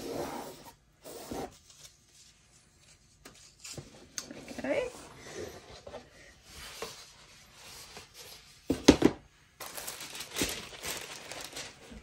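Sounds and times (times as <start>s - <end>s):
tissue paper rustling: 9.6s - 12.0s.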